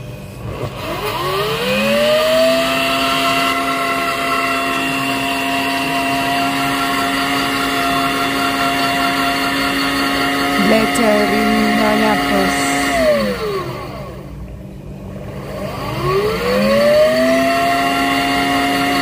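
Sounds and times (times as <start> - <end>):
electric blender motor whining: 0.8 - 10.6.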